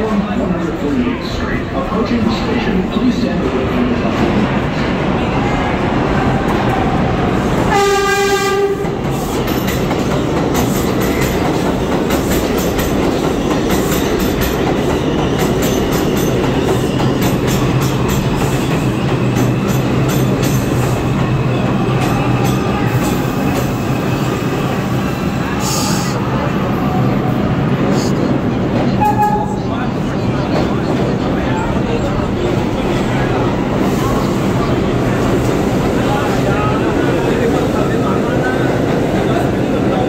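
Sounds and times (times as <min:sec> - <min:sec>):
train wheels rumbling on rails: 0:00.0 - 0:40.0
train horn blast: 0:07.7 - 0:08.9, 0:29.0 - 0:29.6.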